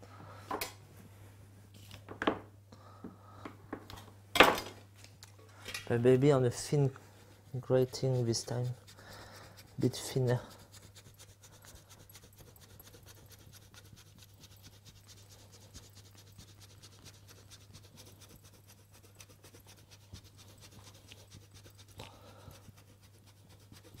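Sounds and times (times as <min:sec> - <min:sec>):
cheese grater scraping: 0:07.5 - 0:24.0.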